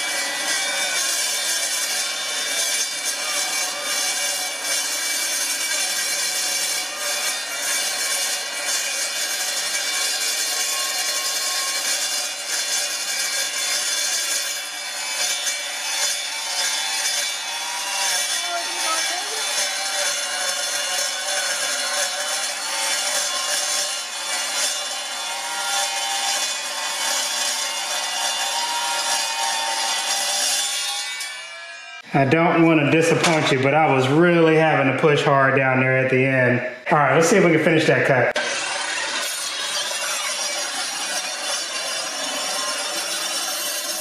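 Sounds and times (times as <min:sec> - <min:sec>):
saw blade grinding through steel: 0:00.0 - 0:44.0.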